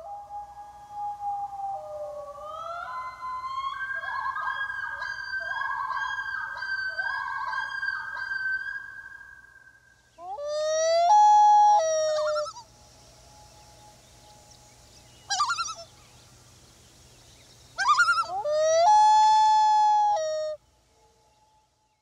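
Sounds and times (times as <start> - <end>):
loon calling: 10.2 - 12.7, 15.1 - 16.1, 17.8 - 20.6.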